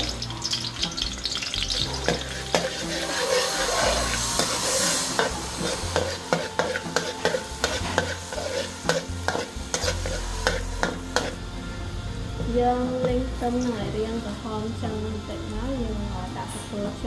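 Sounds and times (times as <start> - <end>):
metal ladle scraping wok: 0.0 - 11.4
garlic sizzling in oil: 0.0 - 11.5.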